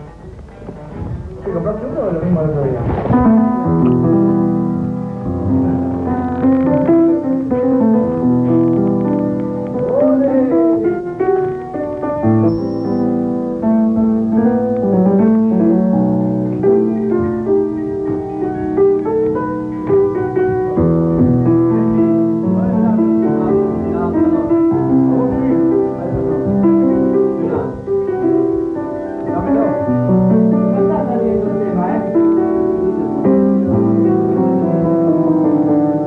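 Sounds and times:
piano music: 0:00.0 - 0:36.0.

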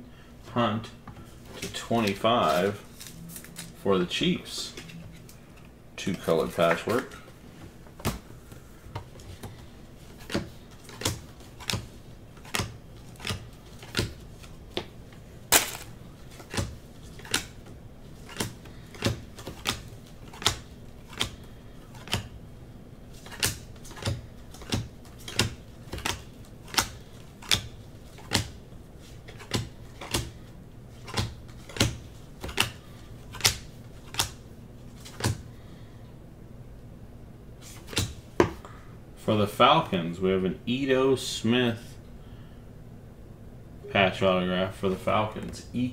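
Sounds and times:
trading cards snapping: 0:15.5 - 0:17.6, 0:18.3 - 0:21.4, 0:23.2 - 0:28.6, 0:31.0 - 0:34.4.

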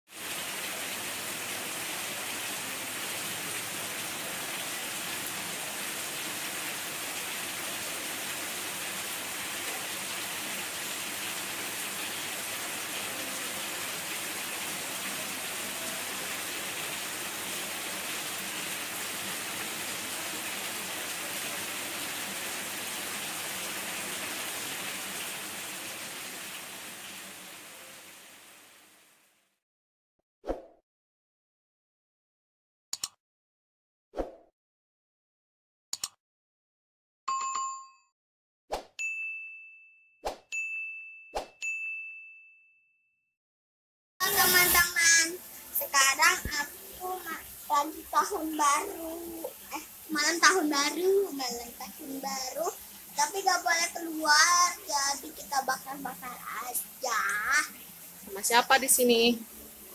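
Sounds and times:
heavy rain pouring: 0:00.1 - 0:29.2, 0:44.2 - 0:59.9.

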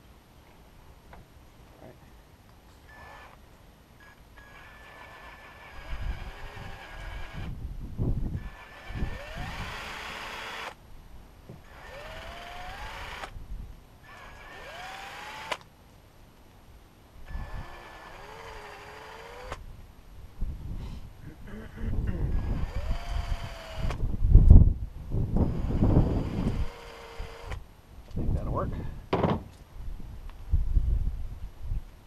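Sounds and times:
cordless drill whining: 0:02.9 - 0:03.4, 0:04.0 - 0:07.6, 0:08.3 - 0:10.8, 0:11.6 - 0:13.4, 0:14.0 - 0:15.7, 0:17.3 - 0:19.6, 0:22.3 - 0:24.1, 0:25.4 - 0:27.6
low knocks: 0:29.1 - 0:29.6.

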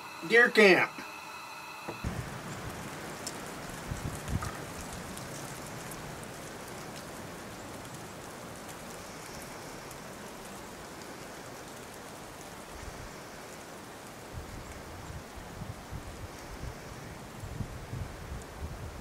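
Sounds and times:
steady rushing hiss: 0:00.0 - 0:19.0.

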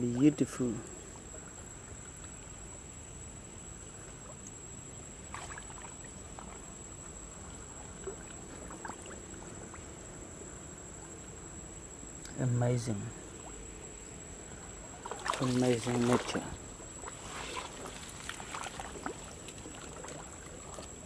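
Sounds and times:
low steady hiss: 0:00.0 - 0:21.0
soft water splashes: 0:03.4 - 0:11.4, 0:12.2 - 0:21.0.

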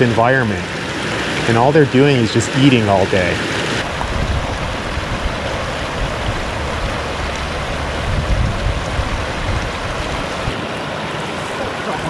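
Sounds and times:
floodwater rushing over dam: 0:00.0 - 0:12.0
deep rumble: 0:03.8 - 0:10.6.

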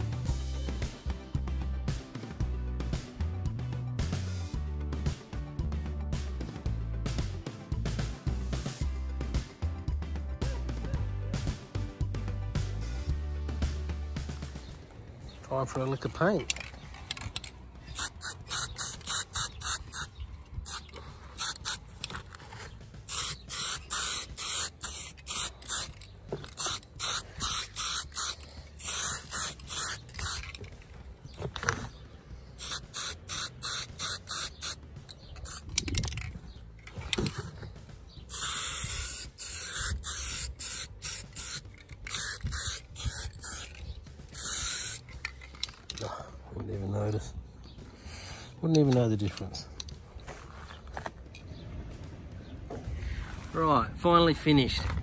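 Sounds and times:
aerosol paint spraying: 0:17.9 - 0:30.7, 0:32.6 - 0:34.8, 0:35.4 - 0:36.0, 0:38.3 - 0:45.2.

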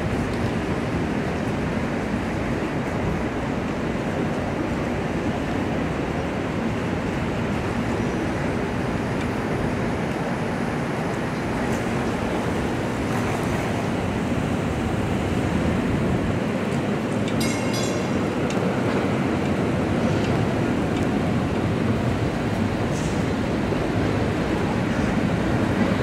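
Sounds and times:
street noise rumble and hiss: 0:00.0 - 0:26.0
streetcar approaching: 0:00.0 - 0:26.0
high metallic ringing: 0:17.4 - 0:18.3.

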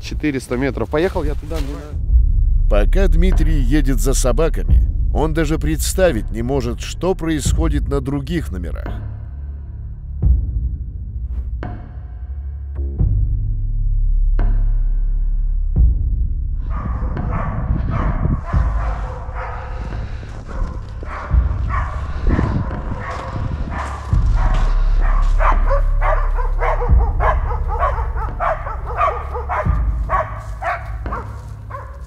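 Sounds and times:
dogs barking: 0:16.6 - 0:32.0.

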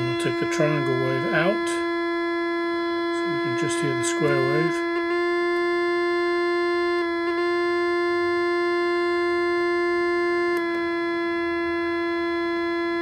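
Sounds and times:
buzzy square-wave tone: 0:00.0 - 0:13.0.

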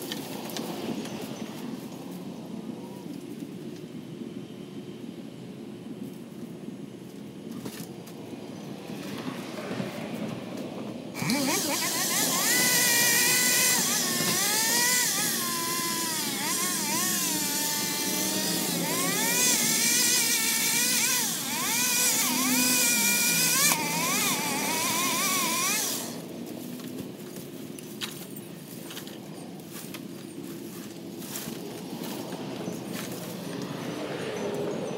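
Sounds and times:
pole saw cutting branches: 0:11.2 - 0:26.3.

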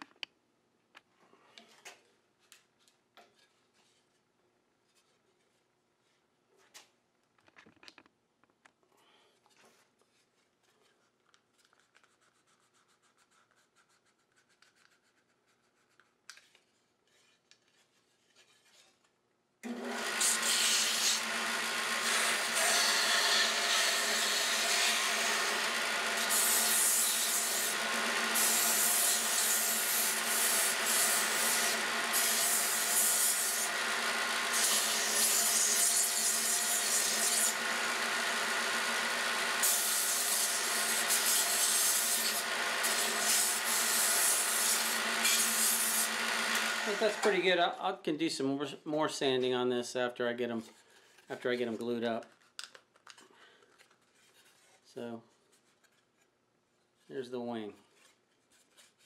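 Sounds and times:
belt sander running: 0:19.6 - 0:47.4
gritty hiss of wood being sanded: 0:46.8 - 0:47.3.

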